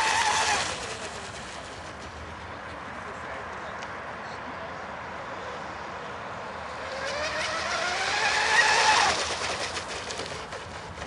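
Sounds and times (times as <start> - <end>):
model speedboat motor whining: 0.0 - 2.3, 6.7 - 11.0.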